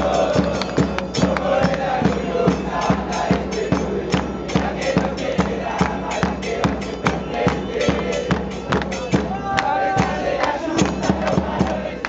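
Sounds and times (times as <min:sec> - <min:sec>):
crowd chanting: 0:00.0 - 0:12.0
drum beating steady rhythm: 0:00.0 - 0:12.0.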